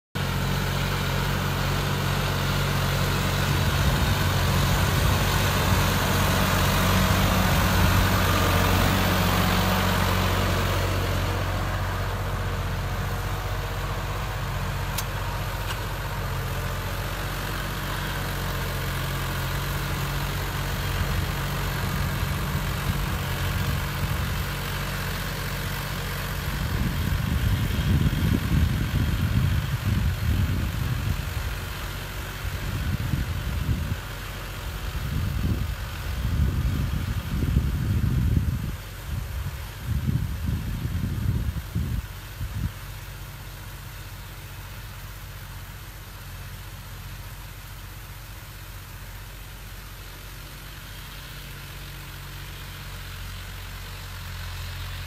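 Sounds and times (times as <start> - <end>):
tractor diesel engine running: 0.2 - 55.0.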